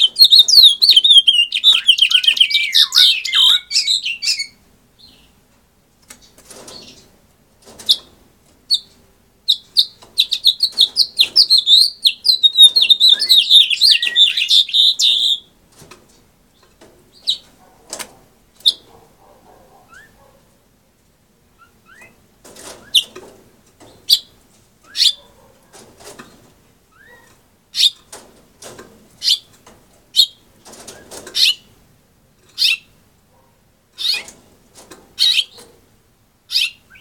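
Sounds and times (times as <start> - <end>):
finch warbling song: 0.0 - 4.5, 10.3 - 15.4
bird chirps: 0.0 - 5.3, 9.5 - 15.5, 36.5 - 37.0.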